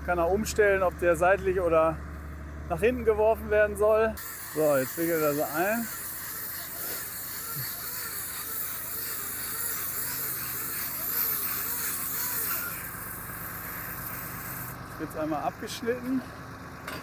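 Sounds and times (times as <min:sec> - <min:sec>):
low engine hum: 0:00.0 - 0:06.0, 0:10.1 - 0:17.0
bale wrapper machinery whining: 0:00.0 - 0:17.0
hiss: 0:04.2 - 0:14.8.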